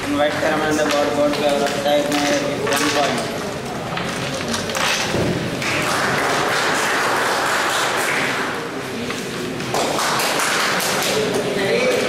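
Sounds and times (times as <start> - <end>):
spectators applauding: 5.6 - 8.8.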